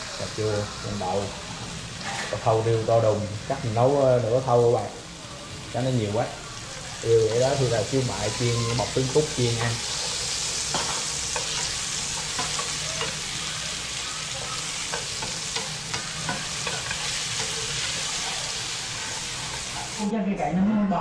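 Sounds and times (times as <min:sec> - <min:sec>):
tomatoes sizzling in oil: 0:00.0 - 0:20.1
chopsticks tapping pan: 0:09.5 - 0:13.4, 0:14.9 - 0:18.1.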